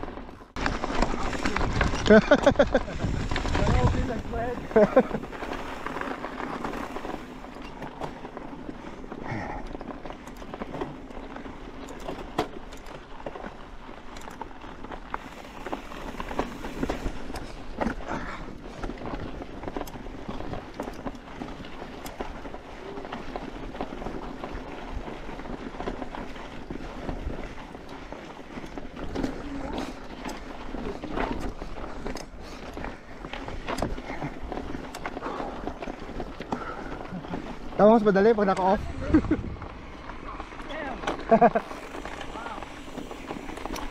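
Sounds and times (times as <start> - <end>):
bike clicks and rattles: 0.0 - 43.9
tyres crunching on gravel: 0.0 - 43.9
wind rumble on microphone: 0.9 - 5.9, 38.7 - 40.6.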